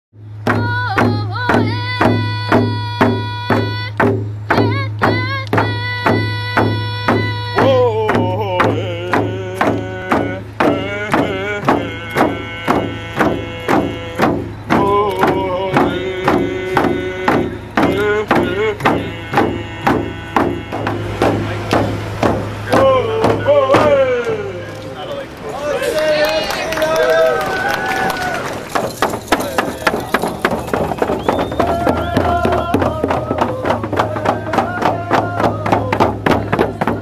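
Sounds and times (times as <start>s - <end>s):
frame drums beating: 0.2s - 24.6s, 27.0s - 37.0s
person singing: 0.5s - 21.7s, 31.6s - 37.0s.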